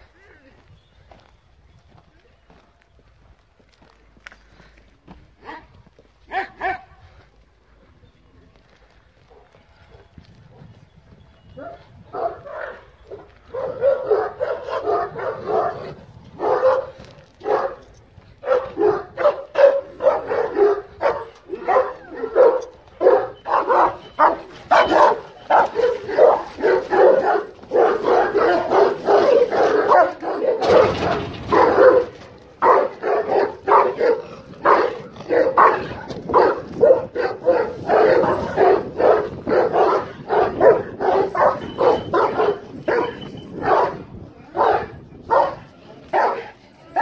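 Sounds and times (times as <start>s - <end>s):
large dogs barking: 5.4s - 7.2s, 11.6s - 47.0s.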